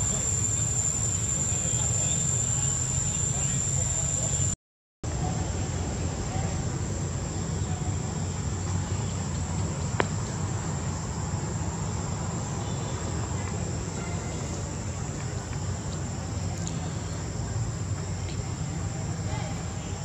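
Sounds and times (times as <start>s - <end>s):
high-pitched insect drone: 0.0s - 4.6s.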